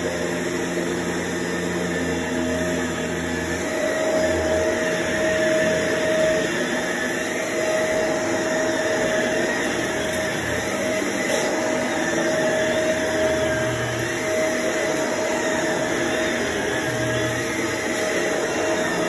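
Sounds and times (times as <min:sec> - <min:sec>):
vacuum cleaner running: 0:00.0 - 0:19.0.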